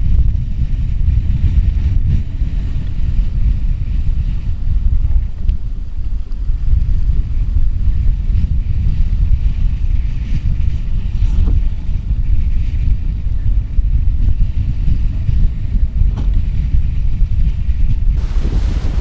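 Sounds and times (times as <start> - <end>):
wind buffeting microphone: 0.0 - 19.0
water rushing along a hull: 17.7 - 19.0
waves breaking: 18.2 - 19.0.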